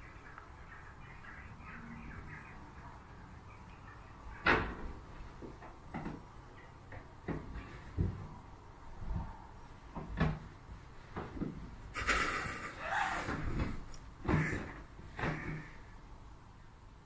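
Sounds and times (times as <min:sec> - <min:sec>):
dull knocks and bumps: 0:04.4 - 0:09.3, 0:09.9 - 0:11.8.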